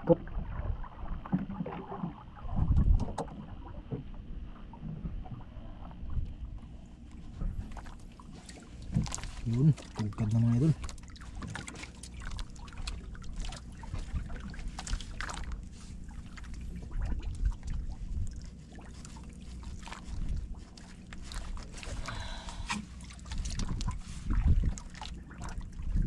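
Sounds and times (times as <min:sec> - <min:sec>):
wind rumble on microphone: 0:00.0 - 0:07.8, 0:13.8 - 0:15.2, 0:16.6 - 0:18.6, 0:19.7 - 0:22.3, 0:23.2 - 0:26.0
water lapping against boat hull: 0:00.0 - 0:26.0.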